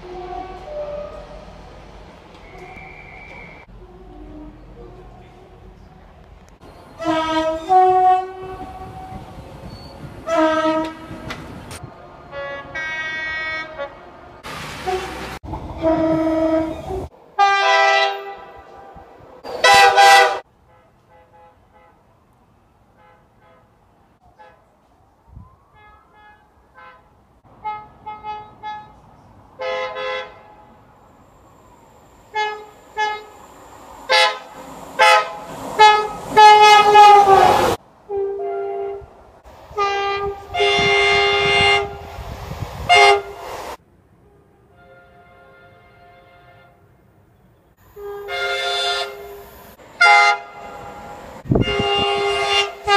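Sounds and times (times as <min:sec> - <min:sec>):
train horn blasts: 0:00.0 - 0:01.6, 0:02.4 - 0:05.0, 0:06.9 - 0:11.6, 0:12.3 - 0:14.1, 0:14.8 - 0:22.1, 0:25.7 - 0:29.0, 0:29.6 - 0:30.8, 0:32.3 - 0:33.4, 0:34.1 - 0:42.1, 0:42.8 - 0:43.4, 0:44.2 - 0:46.9, 0:47.8 - 0:52.9.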